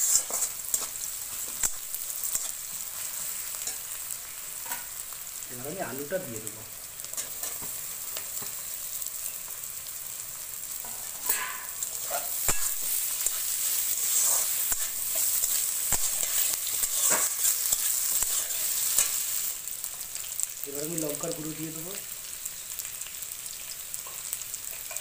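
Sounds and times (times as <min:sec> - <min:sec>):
metal spatula scraping pan: 0:00.0 - 0:01.6, 0:10.9 - 0:19.2
potatoes sizzling in hot oil: 0:00.0 - 0:25.0.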